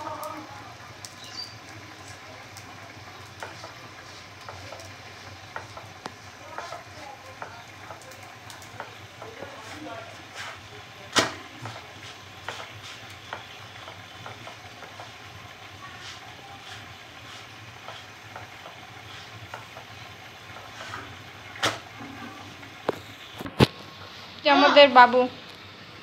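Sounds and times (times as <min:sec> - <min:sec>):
spatula scraping a frying pan: 0:03.4 - 0:07.0, 0:08.8 - 0:10.7, 0:11.6 - 0:15.2, 0:15.9 - 0:22.6.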